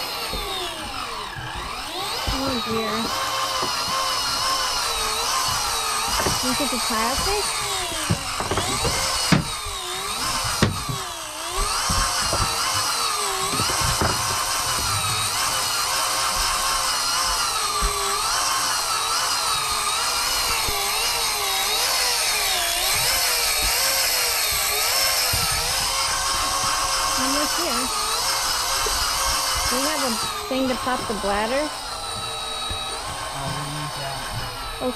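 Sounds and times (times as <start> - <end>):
electric fishing reel motor whine: 0.0 - 34.9
short knocks: 0.3 - 18.3.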